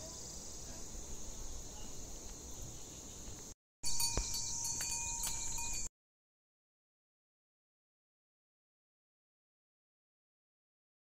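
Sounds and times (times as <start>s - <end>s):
insects chirping: 0.0s - 5.9s
thin ringing tone: 3.8s - 5.9s.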